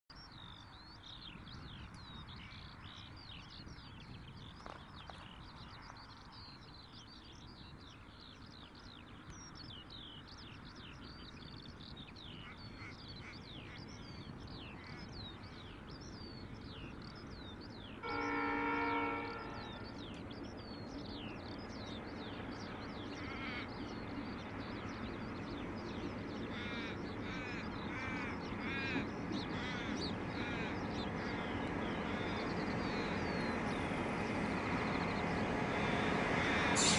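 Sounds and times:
birds chirping: 0:00.1 - 0:36.9
diesel locomotive engine: 0:16.4 - 0:36.9
train horn blast: 0:18.0 - 0:19.9.

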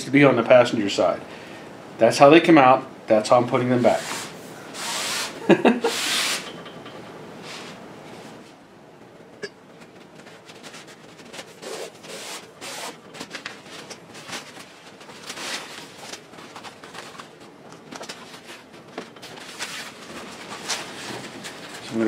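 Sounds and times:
fabric rustling and rubbing: 0:10.0 - 0:22.0.

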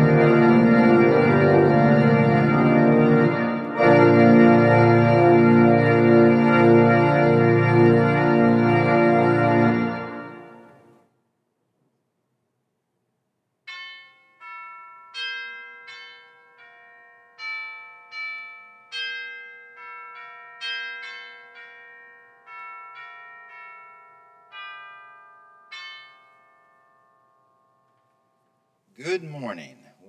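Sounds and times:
bells chiming a slow tune: 0:13.7 - 0:28.9.

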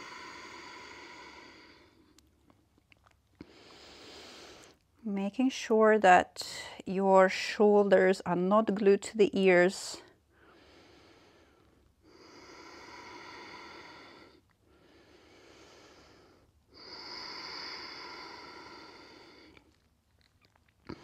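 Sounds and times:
woman breathing slowly: 0:00.0 - 0:02.2, 0:03.4 - 0:04.8, 0:10.0 - 0:19.8.

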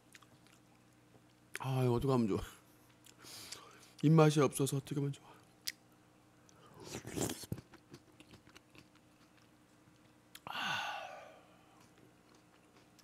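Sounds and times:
person chewing food: 0:00.0 - 0:01.5, 0:06.4 - 0:10.5, 0:11.6 - 0:13.0
wet mouth clicks: 0:06.8 - 0:09.5.

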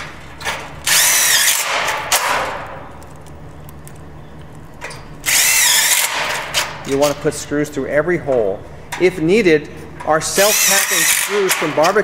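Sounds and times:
cordless drill driving screws: 0:00.9 - 0:01.8, 0:05.3 - 0:06.2, 0:10.4 - 0:11.6.

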